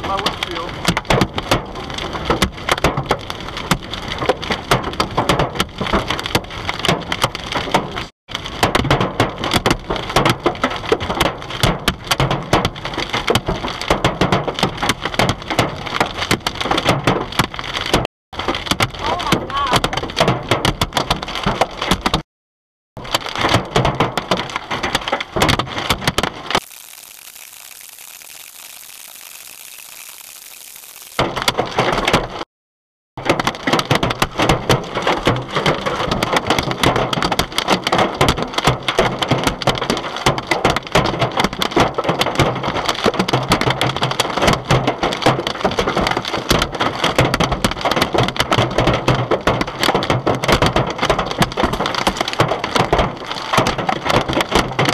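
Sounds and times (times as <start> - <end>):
hailstones pelting a car: 0.0 - 22.2, 23.0 - 29.5, 33.2 - 54.9
steady hiss: 26.6 - 31.2
glass cracking: 26.6 - 31.6.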